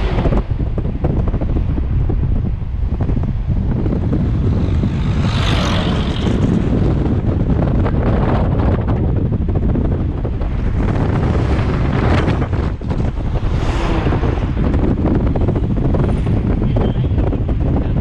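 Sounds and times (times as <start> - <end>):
car rumbling on road: 0.0 - 18.0
wind buffeting microphone: 0.0 - 18.0.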